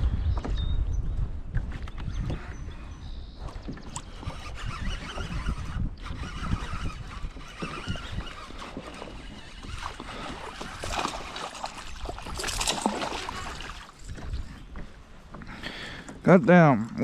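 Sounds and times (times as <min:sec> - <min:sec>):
water sloshing: 0:03.8 - 0:15.0.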